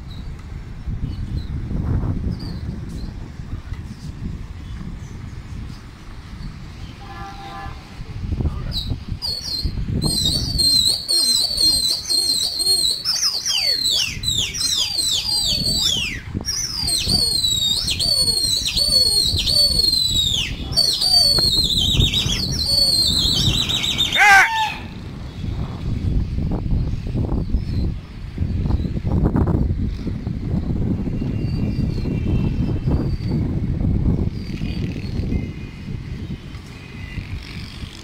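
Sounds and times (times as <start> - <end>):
wind buffeting microphone: 0.0 - 38.0
person whistling shrilly: 10.1 - 24.9.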